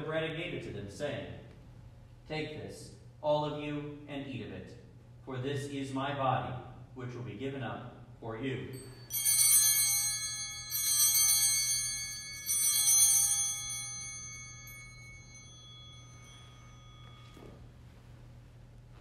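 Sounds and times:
altar bells ringing: 0:08.7 - 0:18.0.

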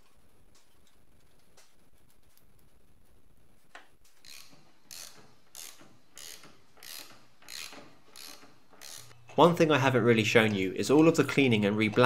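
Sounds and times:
hand ratchet clicking: 0:04.2 - 0:09.2.

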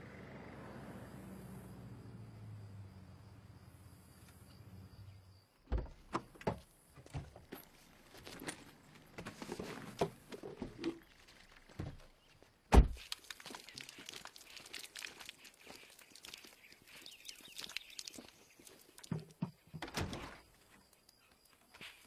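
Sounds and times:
faint outdoor hum: 0:00.0 - 0:12.7.

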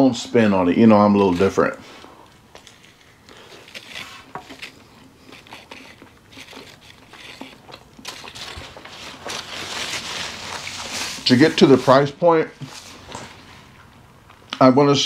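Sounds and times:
chewing crunches: 0:02.2 - 0:10.9
rustle: 0:05.7 - 0:13.8.

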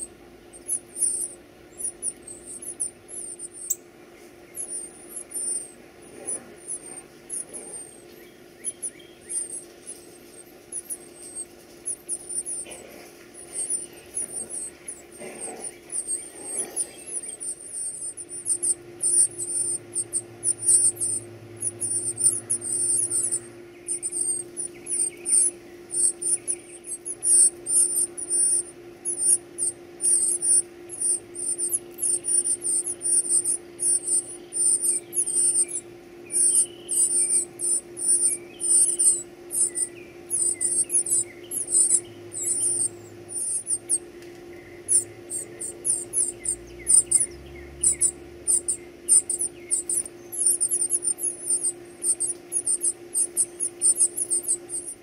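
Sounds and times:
nestlings begging with squeaky peeps: 0:00.0 - 0:55.0.

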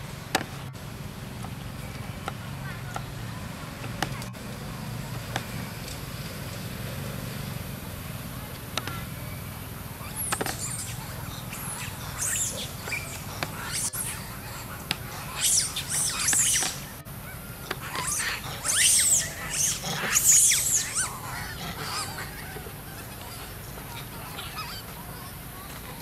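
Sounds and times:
animal squeaks and chirps: 0:10.0 - 0:17.0, 0:17.7 - 0:24.9.

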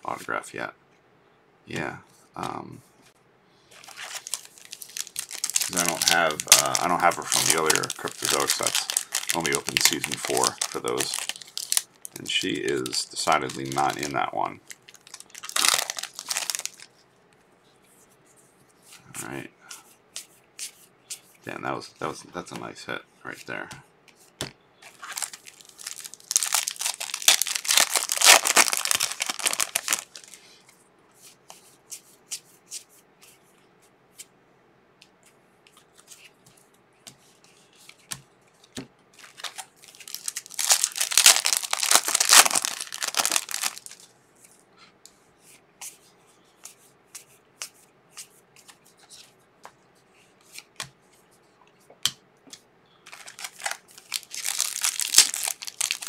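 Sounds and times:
foil wrappers crinkling and tearing: 0:03.7 - 0:16.9, 0:24.9 - 0:30.4, 0:39.2 - 0:44.1, 0:53.1 - 0:56.0.

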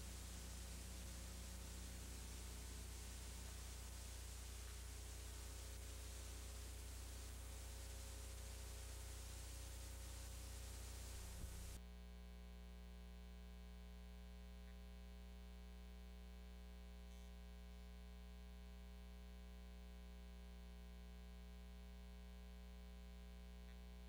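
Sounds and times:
videotape hiss: 0:00.0 - 0:11.8
faint electrical hum: 0:00.0 - 0:24.0.

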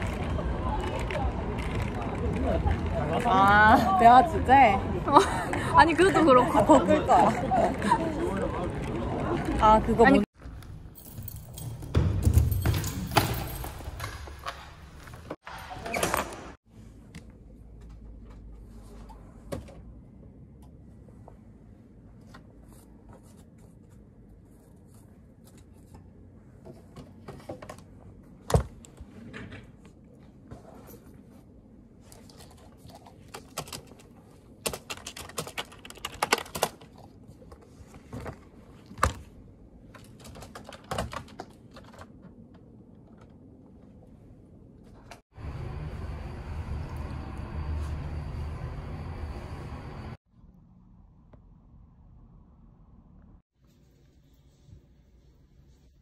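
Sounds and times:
keyboard typing: 0:34.6 - 0:36.8.

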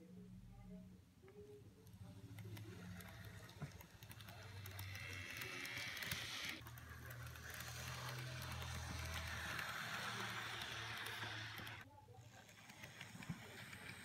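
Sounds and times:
model train motor hum: 0:01.8 - 0:14.0
wheels clicking on rail: 0:02.1 - 0:11.8.

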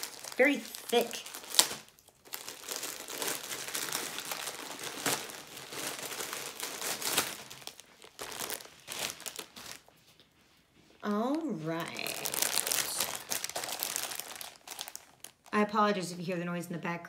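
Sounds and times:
plastic bag crinkling: 0:00.0 - 0:10.0, 0:11.1 - 0:15.6.

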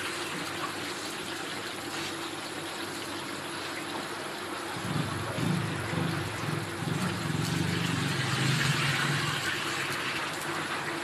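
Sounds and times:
low engine-like drone: 0:04.6 - 0:09.9
oil sizzling: 0:07.2 - 0:10.6.

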